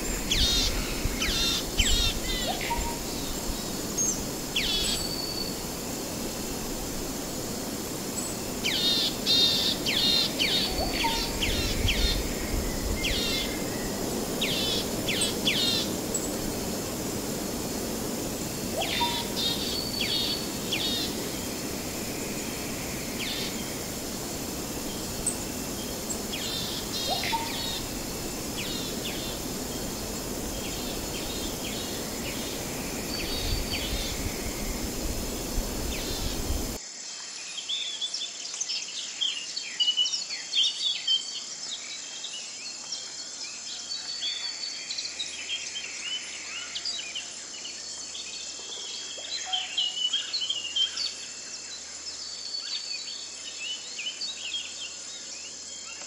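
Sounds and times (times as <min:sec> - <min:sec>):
birds chirping: 0:00.0 - 0:36.8
insects droning: 0:00.0 - 0:37.3.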